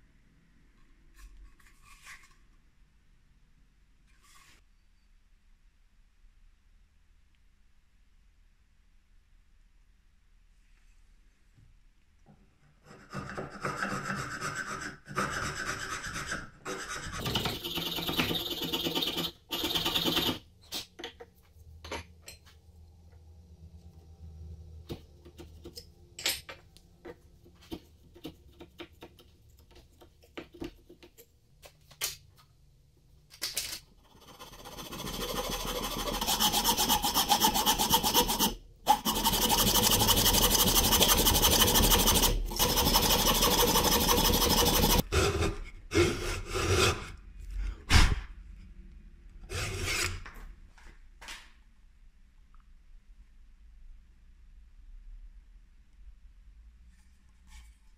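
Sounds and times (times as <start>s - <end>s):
chisel scraping wood: 12.8s - 20.3s, 34.1s - 47.1s
blade rasping back and forth: 12.9s - 20.4s, 34.0s - 47.0s.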